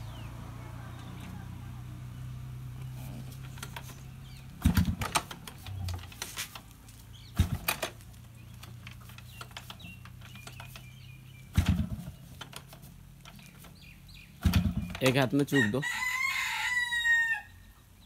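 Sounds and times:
motorcycle engine kick-started: 0:02.5 - 0:15.3.

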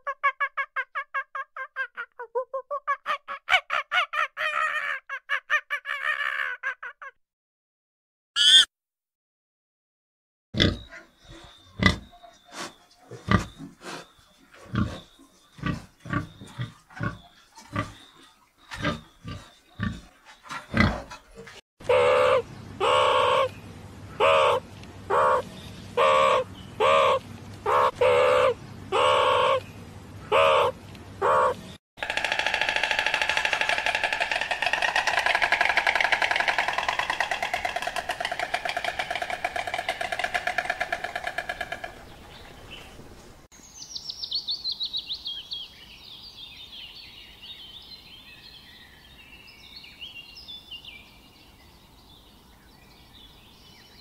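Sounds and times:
animal grunts and calls: 0:10.6 - 0:23.5.

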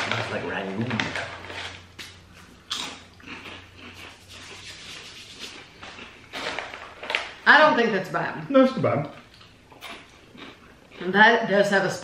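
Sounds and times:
crunching potato chips: 0:00.0 - 0:07.4.

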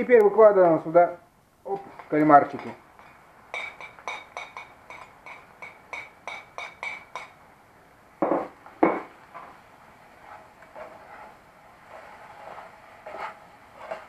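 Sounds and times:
knife clinking on ceramic plate: 0:01.9 - 0:07.4
plate and knife knocking on counter: 0:08.2 - 0:09.1.

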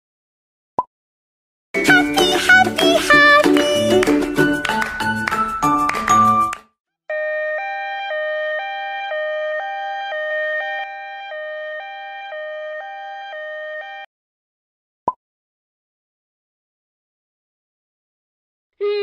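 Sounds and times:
music: 0:01.8 - 0:06.7
two-tone ambulance siren: 0:07.1 - 0:14.1.

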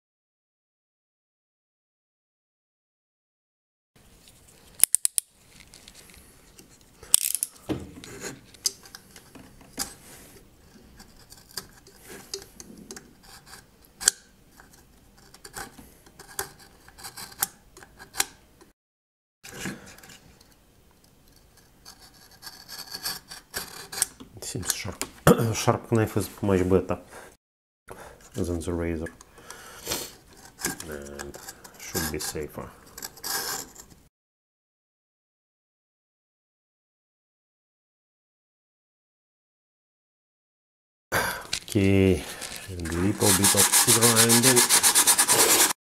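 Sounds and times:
knife scraping wood: 0:08.0 - 0:13.7, 0:21.6 - 0:24.2, 0:29.8 - 0:34.0, 0:42.3 - 0:45.8.

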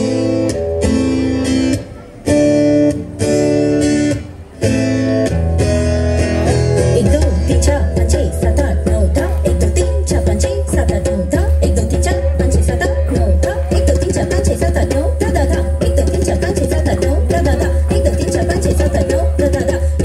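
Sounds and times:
dance music over loudspeakers: 0:06.0 - 0:20.0.

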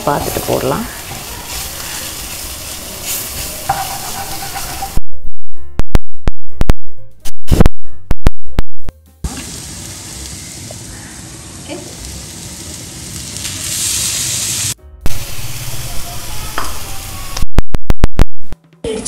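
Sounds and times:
onion frying and sizzling: 0:00.0 - 0:05.0, 0:09.1 - 0:18.6.

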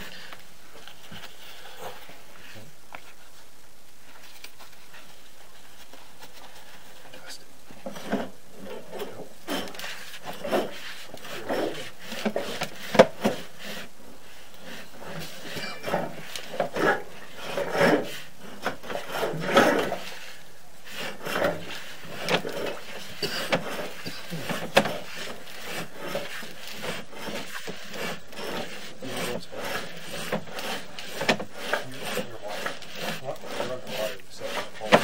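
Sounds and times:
cable rubbing and scraping in pipe: 0:00.0 - 0:35.0.

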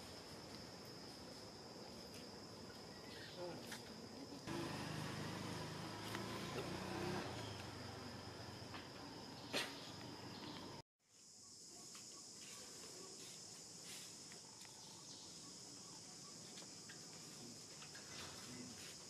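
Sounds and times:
insects droning: 0:00.0 - 0:19.0
faint chirps: 0:11.4 - 0:19.0.

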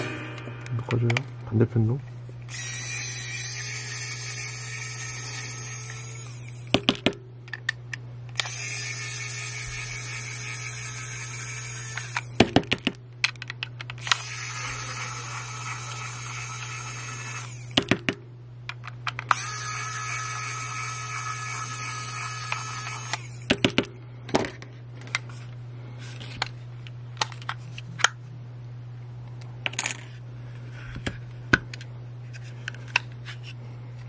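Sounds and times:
electric screwdriver whining: 0:02.5 - 0:06.8, 0:08.3 - 0:12.4, 0:14.0 - 0:17.8, 0:19.2 - 0:23.6.

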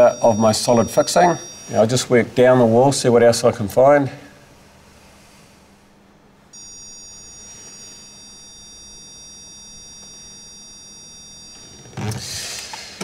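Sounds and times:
stud finder high-pitched beep: 0:00.0 - 0:02.1, 0:06.6 - 0:12.2.

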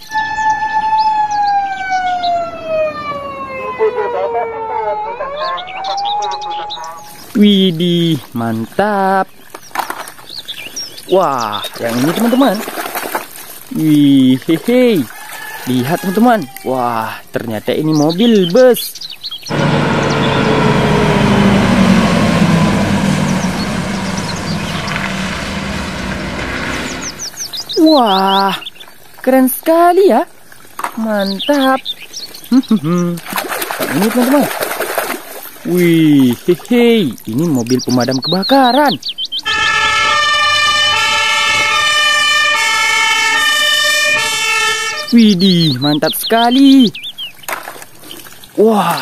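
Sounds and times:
fire engine two-tone siren: 0:00.0 - 0:07.2, 0:19.5 - 0:27.3, 0:39.4 - 0:45.3
birds chirping faintly: 0:00.0 - 0:12.8, 0:13.7 - 0:34.5, 0:35.6 - 0:39.5, 0:45.0 - 0:49.0
bus diesel engine drone: 0:19.5 - 0:27.9.

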